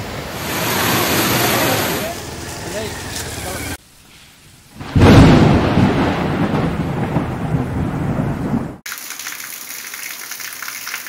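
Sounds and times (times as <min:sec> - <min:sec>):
thunder crack and rumble: 0:04.8 - 0:08.8.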